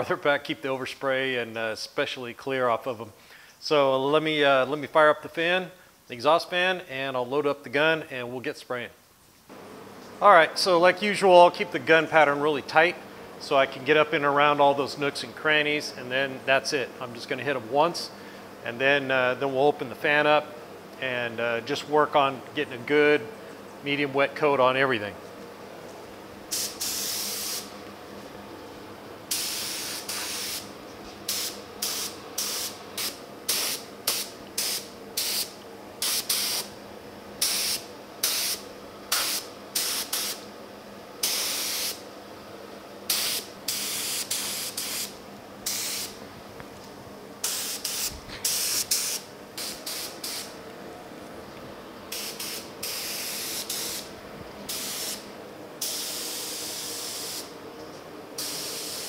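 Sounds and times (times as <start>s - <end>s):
exhaust fan hum: 0.0s - 59.0s
spray gun hissing: 26.4s - 27.8s, 29.2s - 36.8s, 37.4s - 40.5s, 41.2s - 42.1s, 43.1s - 46.2s, 47.4s - 50.6s, 52.1s - 57.6s, 58.4s - 59.0s.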